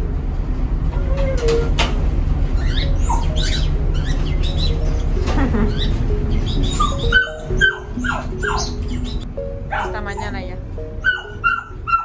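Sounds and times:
low rumble: 0:00.0 - 0:07.6
dog whining: 0:02.6 - 0:10.3, 0:11.0 - 0:12.0.

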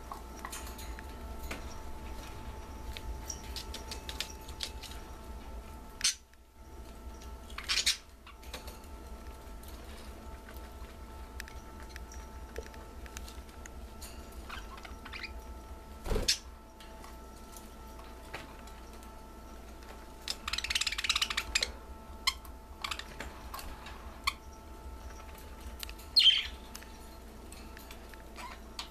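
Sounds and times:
small ticks: 0:00.0 - 0:15.6, 0:16.8 - 0:28.9
budgies chirping: 0:01.4 - 0:08.6, 0:14.4 - 0:16.5, 0:18.8 - 0:27.1, 0:28.0 - 0:28.9.

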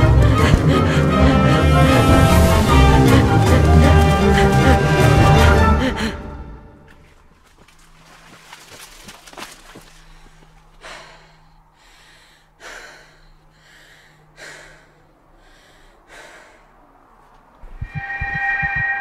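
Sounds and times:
man breathing heavily: 0:00.0 - 0:06.6, 0:09.9 - 0:17.3.

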